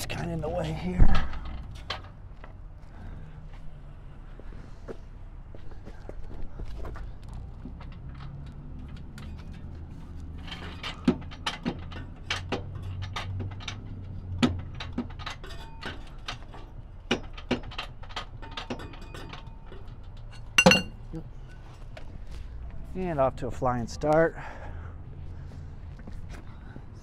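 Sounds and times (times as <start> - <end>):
floor jack metal clicks and clanks: 7.0 - 21.6.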